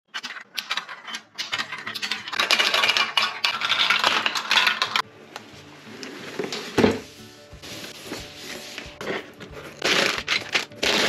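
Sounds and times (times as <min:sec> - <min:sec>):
steel balls rattling down plastic track: 0:00.1 - 0:05.0
soft background music: 0:01.4 - 0:11.0.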